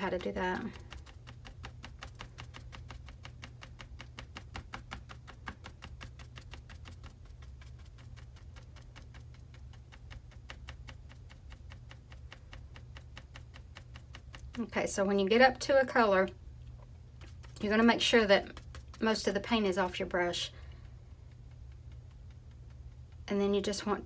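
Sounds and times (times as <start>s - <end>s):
paintbrush tapping on canvas: 0.0s - 14.6s, 17.2s - 20.2s.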